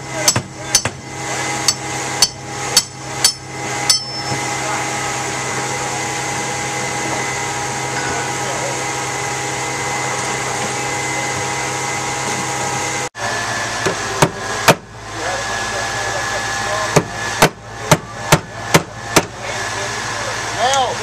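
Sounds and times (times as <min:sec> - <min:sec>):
heavy hammer blows: 0:00.0 - 0:13.1
engine droning: 0:00.0 - 0:21.0.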